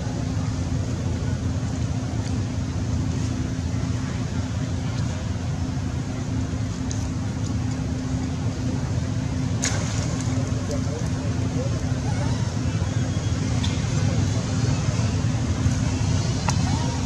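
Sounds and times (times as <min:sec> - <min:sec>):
low rumble with hum: 0:00.0 - 0:17.0.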